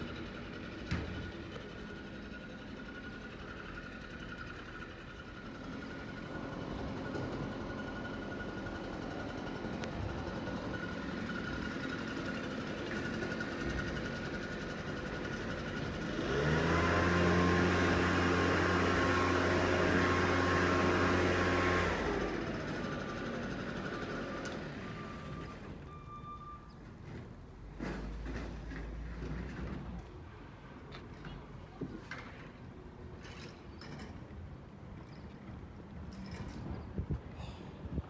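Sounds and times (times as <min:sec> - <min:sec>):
garbage truck engine running: 0:00.0 - 0:25.9.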